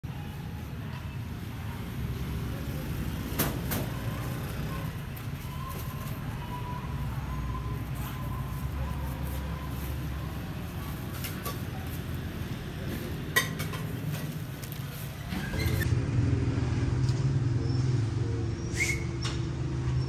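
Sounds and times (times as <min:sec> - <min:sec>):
utensils clinking: 0:12.9 - 0:15.8.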